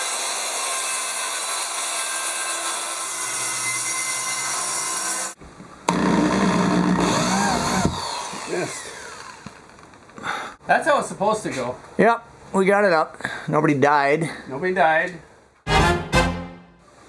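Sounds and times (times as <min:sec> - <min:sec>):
power drill: 0:00.0 - 0:09.9
circular saw cutting board: 0:00.0 - 0:10.1.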